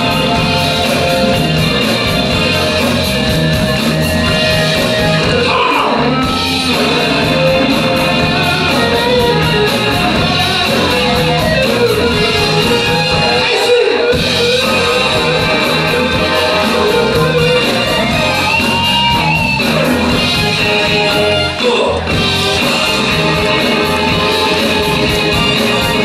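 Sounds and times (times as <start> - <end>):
drum kit beat: 0.0 - 26.0
electric guitar: 0.0 - 26.0
soul band playing: 0.0 - 26.0.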